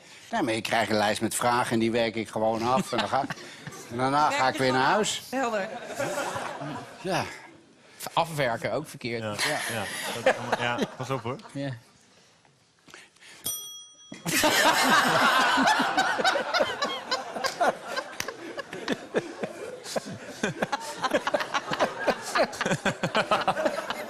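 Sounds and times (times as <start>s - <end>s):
audience laughter: 5.7s - 7.0s, 14.3s - 24.0s
desk bell ringing: 13.4s - 15.0s.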